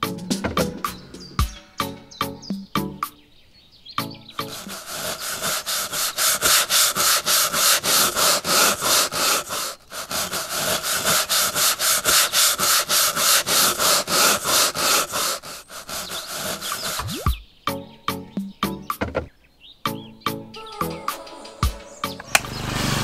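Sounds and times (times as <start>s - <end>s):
rapid rhythmic rubbing: 4.3s - 17.3s.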